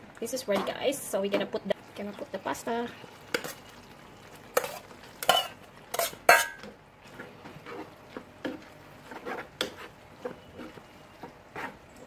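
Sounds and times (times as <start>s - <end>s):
metal tongs clinking on pan: 4.6s - 6.7s.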